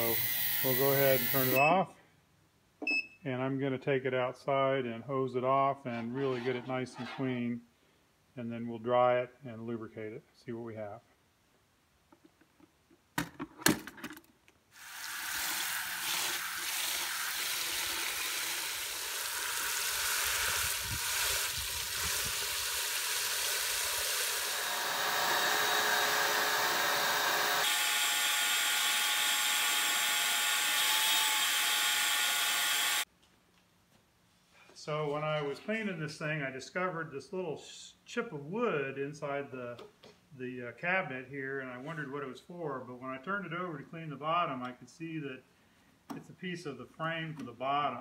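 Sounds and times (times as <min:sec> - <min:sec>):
hose nozzle spraying water: 0:00.0 - 0:01.6, 0:14.8 - 0:25.9
shop vacuum whine: 0:00.0 - 0:01.7, 0:24.4 - 0:28.2.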